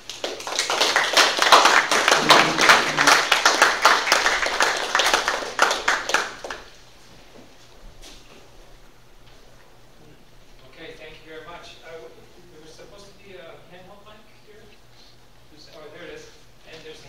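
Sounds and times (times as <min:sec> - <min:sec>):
audience applauding: 0:00.0 - 0:06.7.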